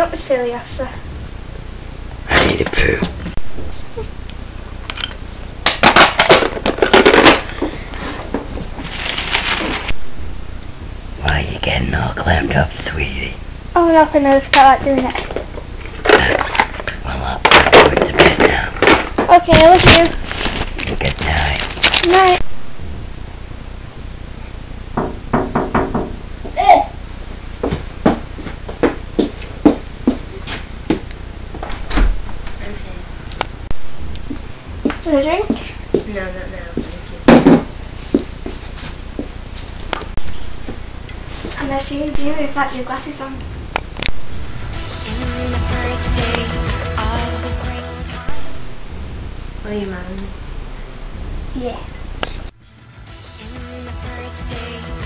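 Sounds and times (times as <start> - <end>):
knocking on glass door: 25.0 - 26.2.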